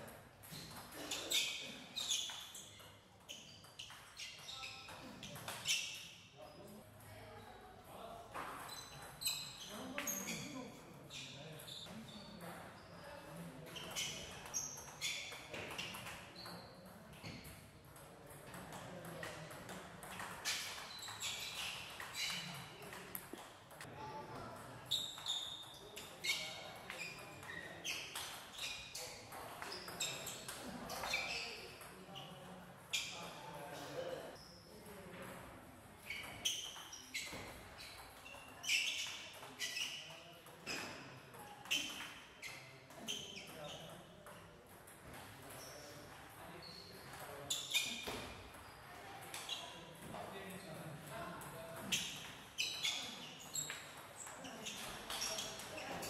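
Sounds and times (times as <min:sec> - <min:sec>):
ping pong ball hitting paddles: 0:13.7 - 0:33.1.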